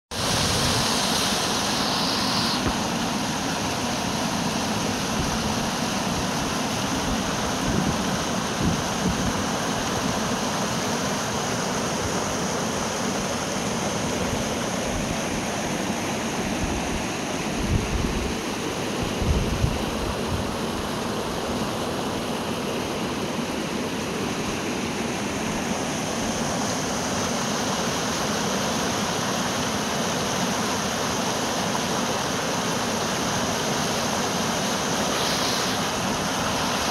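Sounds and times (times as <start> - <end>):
stream cascading over rocks: 0.1 - 19.2, 19.9 - 36.9.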